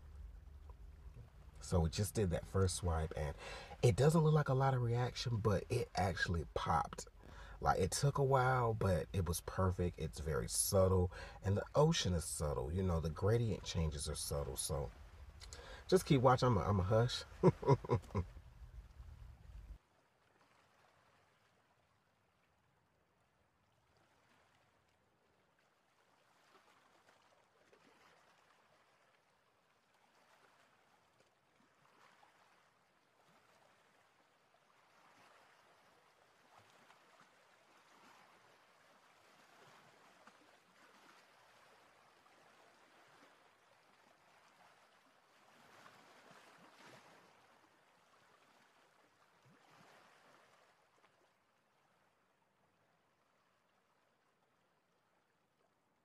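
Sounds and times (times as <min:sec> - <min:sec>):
faint hiss: 0:00.0 - 0:19.8.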